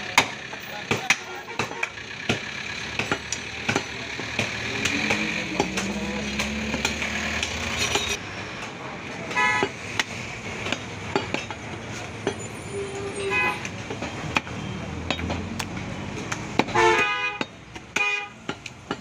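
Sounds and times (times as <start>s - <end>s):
vehicle engine running: 0.0s - 12.6s
cleaver chopping meat on wood: 0.1s - 7.5s, 14.3s - 16.8s
vehicle horn toot: 1.1s - 2.0s, 9.3s - 9.7s, 12.7s - 13.7s, 16.7s - 17.4s, 18.0s - 18.4s.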